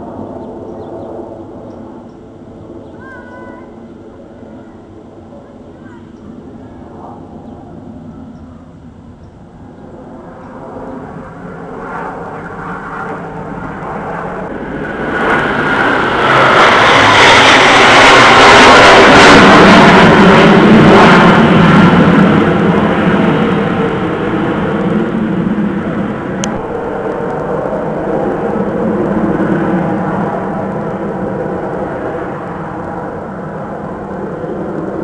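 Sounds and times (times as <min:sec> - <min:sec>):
jets flying over: 0:00.0 - 0:35.0.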